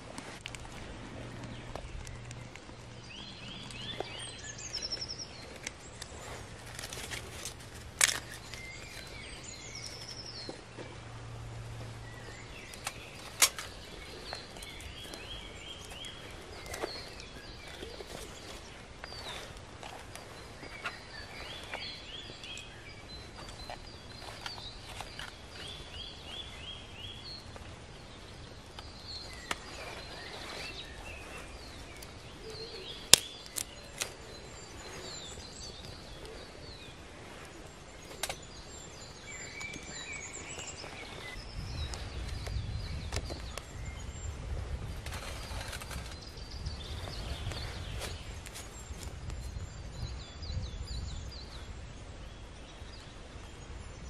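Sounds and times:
small birds singing: 0.0s - 54.0s
sharp snap: 33.1s - 34.2s.

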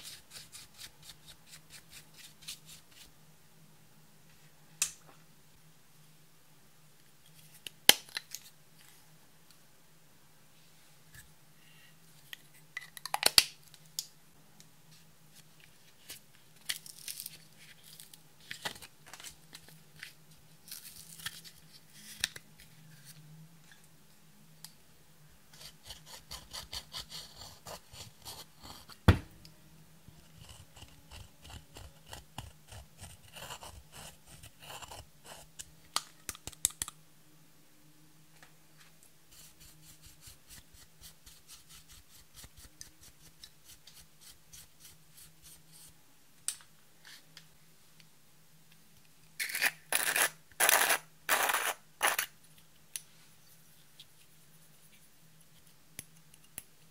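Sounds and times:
faint steady hum: 0.0s - 56.9s
tool scraping eyeshadow: 25.6s - 29.0s, 30.2s - 35.5s, 49.4s - 52.3s.

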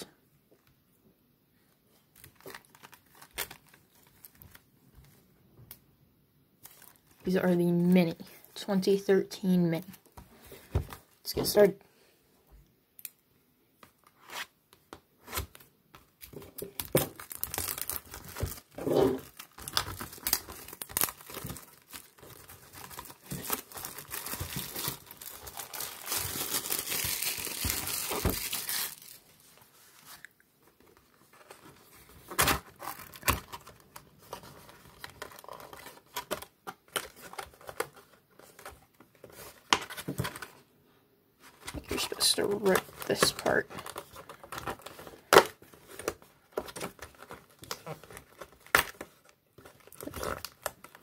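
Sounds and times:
shrink wrap tearing and crinkling: 2.2s - 4.7s, 16.2s - 29.3s, 32.2s - 38.7s, 41.6s - 51.0s.

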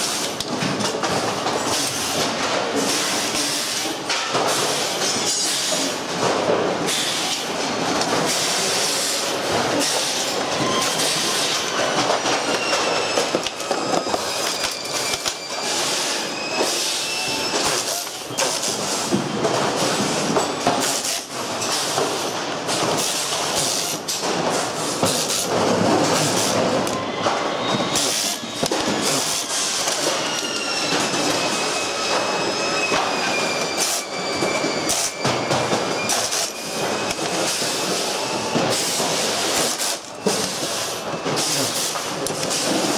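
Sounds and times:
thin high machine whine: 8.4s - 18.9s, 26.1s - 41.9s
plastic and metal parts clattering: 9.5s - 15.4s.

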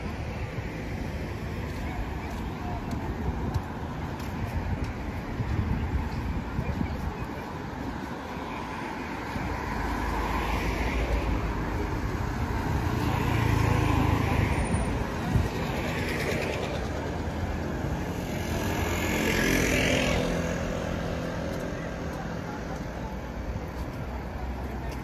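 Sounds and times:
cars driving past: 7.5s - 25.0s.

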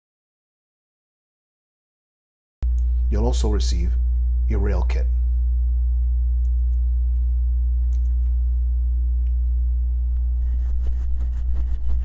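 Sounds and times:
low hum: 2.6s - 12.0s.

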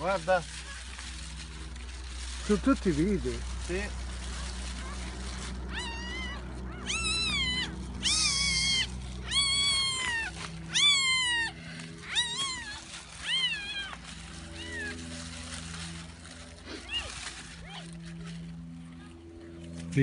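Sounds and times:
puppy crying: 4.3s - 18.1s
puppy harsh squeal: 5.7s - 15.7s.

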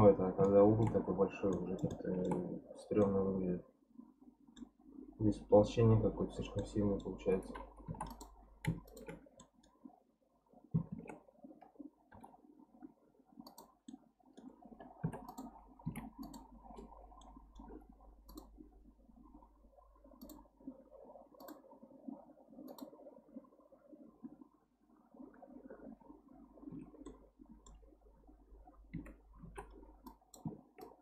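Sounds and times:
computer mouse clicks: 0.0s - 3.2s, 6.4s - 9.8s, 10.8s - 12.4s, 13.4s - 18.6s, 20.2s - 20.5s, 21.4s - 21.7s, 22.6s - 23.0s, 28.8s - 31.0s
keyboard key presses: 0.4s - 3.1s, 6.6s - 9.6s, 14.9s - 17.7s.

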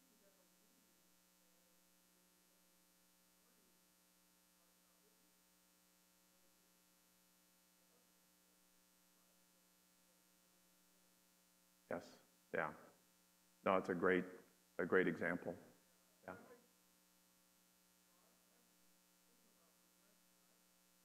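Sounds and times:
electrical hum: 13.7s - 21.0s.

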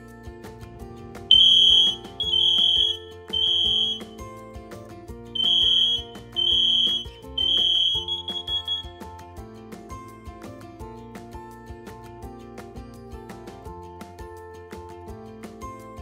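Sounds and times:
background music: 0.0s - 16.0s
loud high-pitched alarm beeps: 1.3s - 4.1s, 5.4s - 8.9s.

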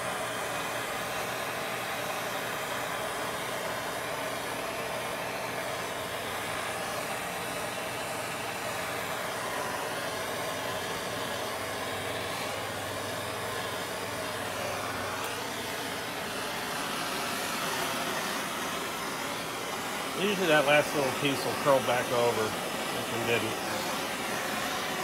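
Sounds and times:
gas torch flame hissing: 0.0s - 25.0s.

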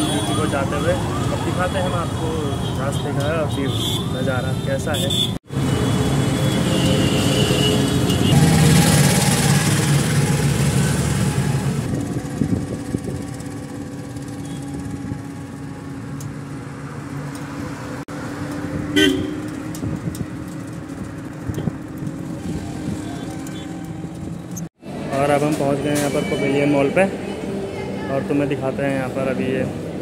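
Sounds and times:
auto-rickshaw engine and road noise: 0.0s - 30.0s
vehicle horn toot: 2.2s - 4.2s, 4.9s - 8.4s, 19.0s - 19.5s.

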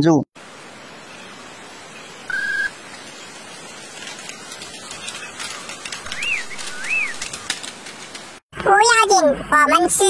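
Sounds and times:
outdoor background hiss: 0.0s - 10.0s
faint crackling clicks: 2.9s - 8.4s.

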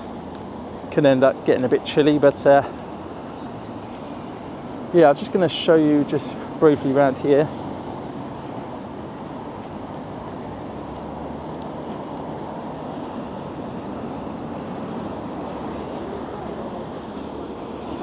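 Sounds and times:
road traffic noise: 0.0s - 18.0s
small birds chirping: 0.0s - 18.0s.

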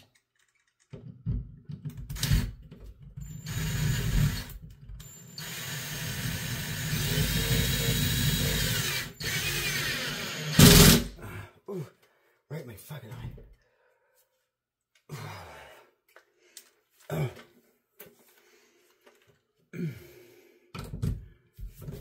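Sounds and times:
cordless drill driving screw: 2.1s - 2.6s, 3.2s - 11.1s.

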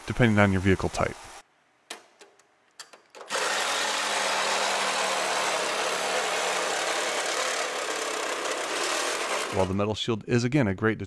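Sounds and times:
reciprocating saw cutting metal: 3.3s - 9.8s.

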